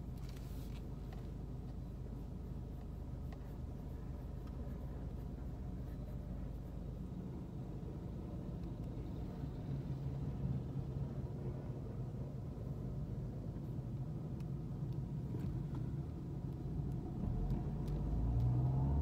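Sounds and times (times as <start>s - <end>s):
low rumble inside a car: 0.0s - 19.0s
faint ticks: 16.5s - 18.6s.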